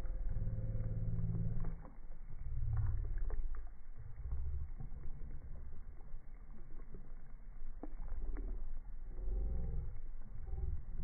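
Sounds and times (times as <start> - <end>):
water splashing on rocks: 1.4 - 8.8.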